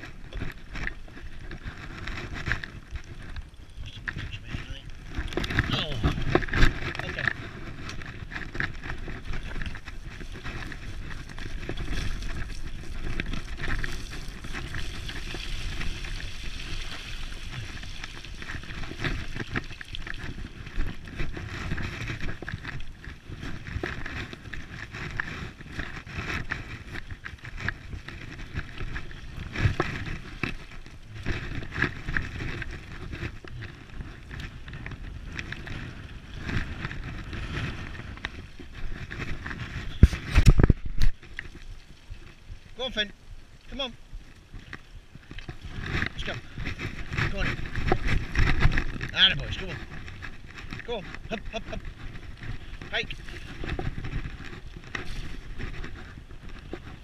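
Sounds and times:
wind noise on microphone: 0.0 - 57.0
tyres rolling on dirt track: 45.2 - 57.0.

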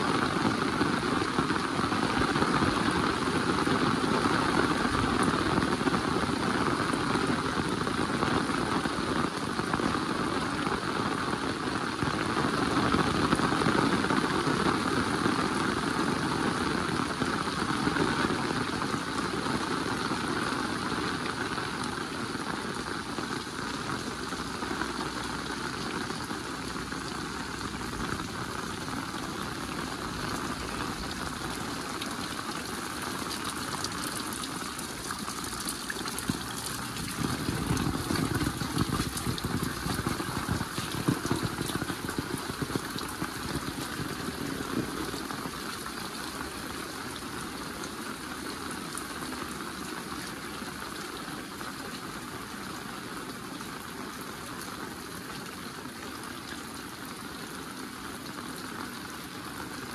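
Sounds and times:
heavy rain falling: 0.0 - 59.9
raindrop hits: 12.5 - 47.5.

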